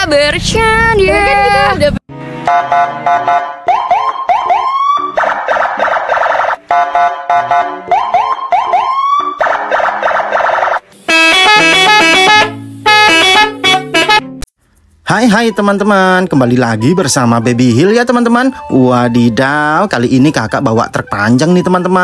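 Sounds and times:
electronic siren whoops and wail: 2.5 - 12.4.

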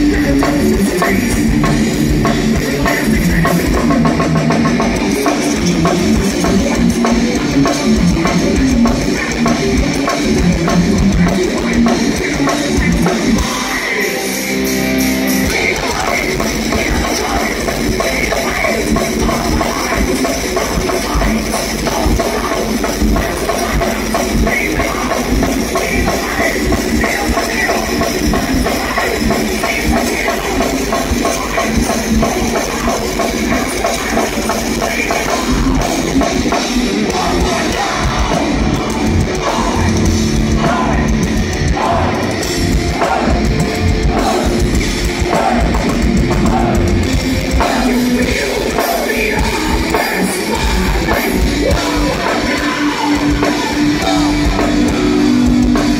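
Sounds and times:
distorted electric guitars: 0.0 - 55.9
fast drum kit: 0.0 - 55.9
metal band playing live: 0.0 - 55.9.

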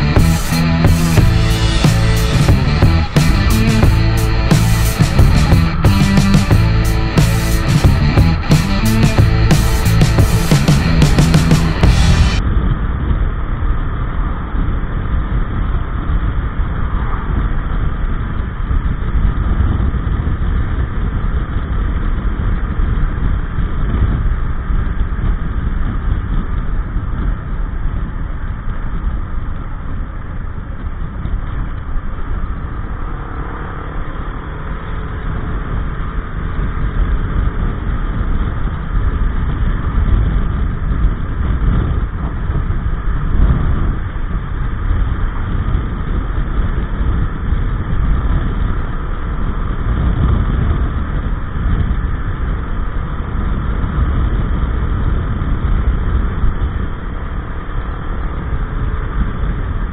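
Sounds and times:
scooter engine running: 0.0 - 12.4
wind rush on microphone: 0.0 - 59.9.

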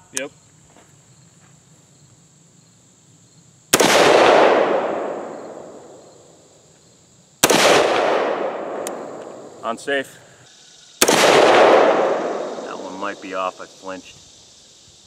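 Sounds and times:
rifle shots with echo: 3.7 - 6.1, 7.4 - 9.6, 11.0 - 13.4.

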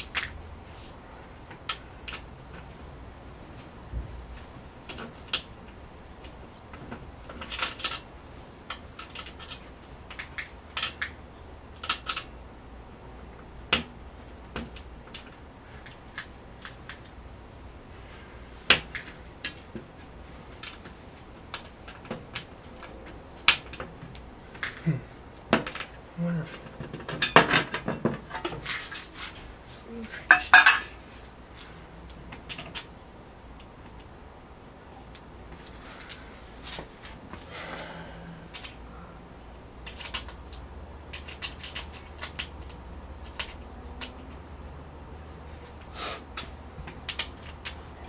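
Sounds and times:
metal plate clicking and tapping: 30.3 - 30.9.

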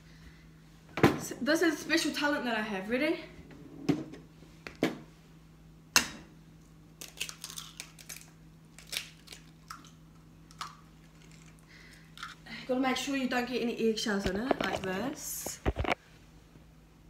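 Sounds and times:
eggshells cracking: 7.0 - 12.4.

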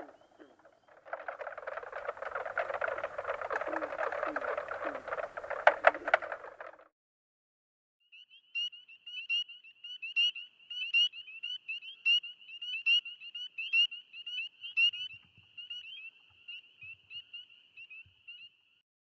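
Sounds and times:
spring peepers piping: 0.0 - 6.4, 8.2 - 18.7.

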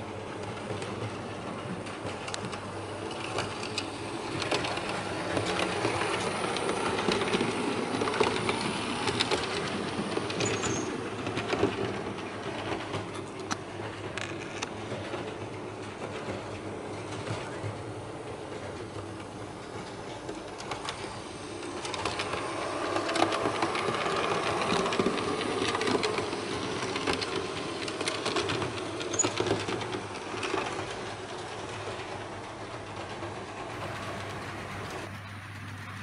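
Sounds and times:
wheels clicking over rail joints: 0.0 - 36.0
model train motor whirring: 1.8 - 14.7, 19.5 - 31.8.

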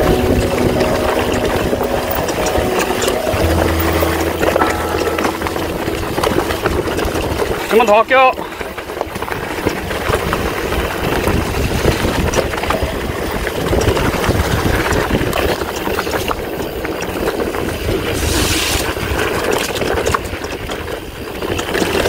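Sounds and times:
wind rumbling on microphone: 6.0 - 22.0.

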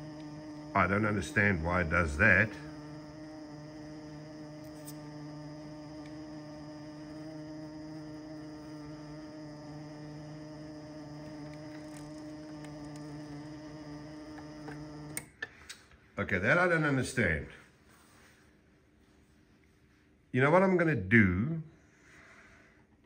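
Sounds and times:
low hum: 0.0 - 15.3
electric motors humming: 0.0 - 15.5.

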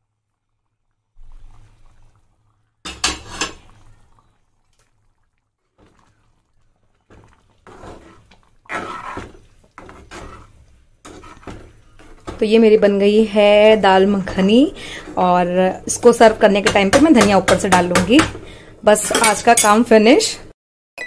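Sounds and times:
metal ladle scraping steel pot: 2.9 - 3.9, 7.1 - 12.4.

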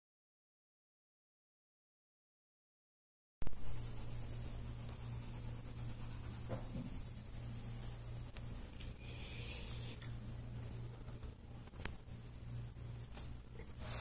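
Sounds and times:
steady low hum: 3.4 - 14.0
pencil scratching on paper: 3.5 - 10.0.

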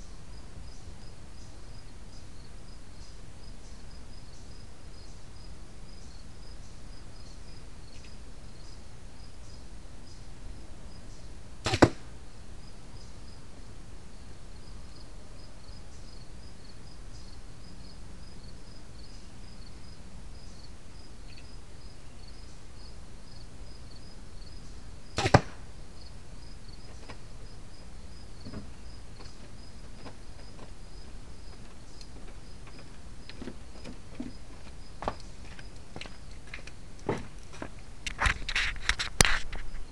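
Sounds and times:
insects chirping: 0.0 - 39.9
arrow striking target: 11.6 - 12.1, 25.2 - 25.6.

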